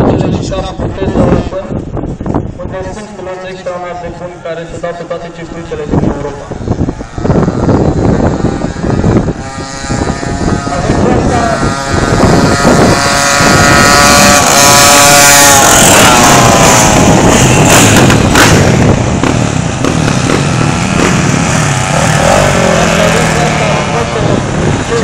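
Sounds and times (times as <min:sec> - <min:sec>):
motorcycles revving past: 0:06.8 - 0:25.0.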